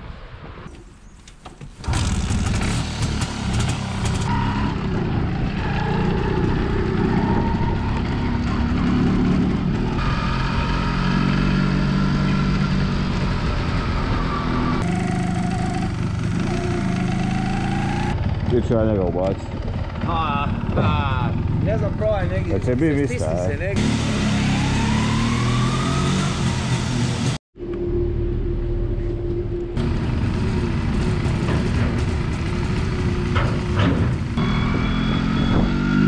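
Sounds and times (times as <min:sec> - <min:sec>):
two-stroke motorcycle engine: 0:01.9 - 0:13.6, 0:14.8 - 0:22.6, 0:29.8 - 0:36.0.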